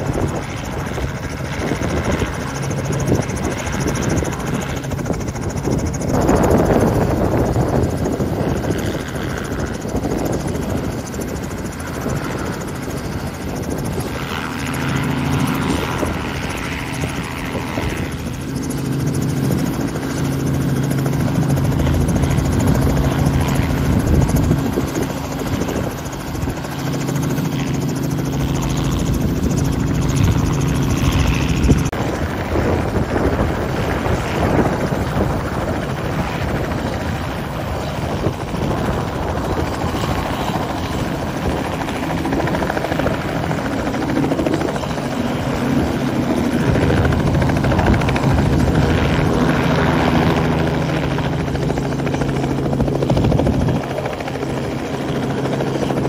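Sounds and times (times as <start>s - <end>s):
helicopter engine drone: 0.0s - 56.0s
helicopter rotor beating: 0.0s - 56.0s.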